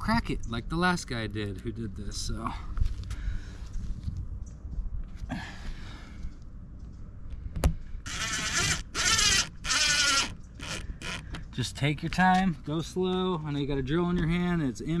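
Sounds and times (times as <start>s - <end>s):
impact drill driving a screw: 8.1s - 11.2s.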